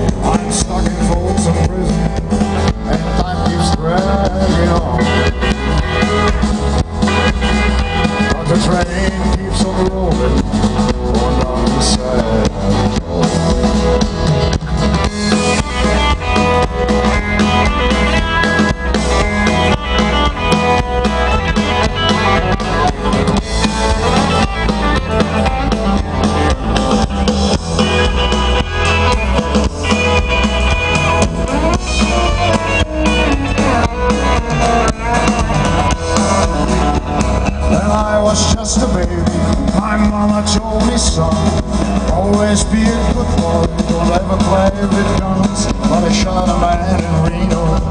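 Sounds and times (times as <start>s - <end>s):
drum kit beat: 0.0s - 47.9s
electric guitar: 0.0s - 47.9s
strummed acoustic guitars: 0.0s - 47.9s.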